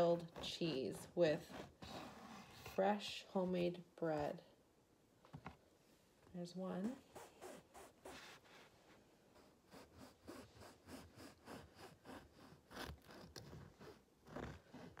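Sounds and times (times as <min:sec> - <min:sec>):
bread knife sawing loaf: 0:00.0 - 0:02.8, 0:09.4 - 0:15.0.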